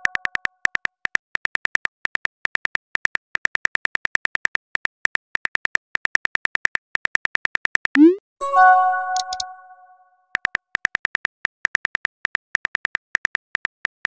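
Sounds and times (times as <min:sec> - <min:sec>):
phone keyboard clicks: 0:09.1 - 0:09.5.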